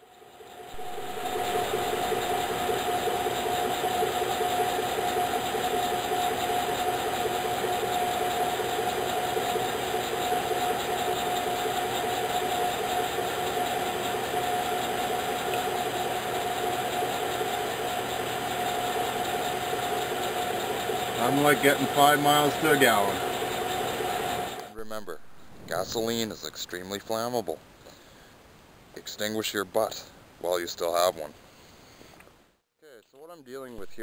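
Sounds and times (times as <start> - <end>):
truck engine idling: 0.0 - 26.2
high whine: 0.0 - 26.3, 33.8 - 34.0.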